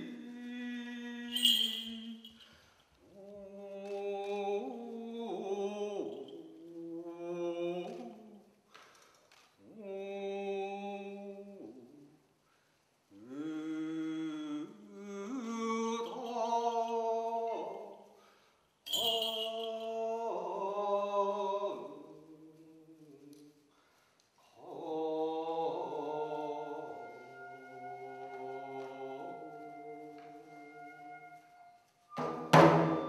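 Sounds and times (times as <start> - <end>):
faint high ringing tone: 1.3 - 2.6, 18.9 - 20.0.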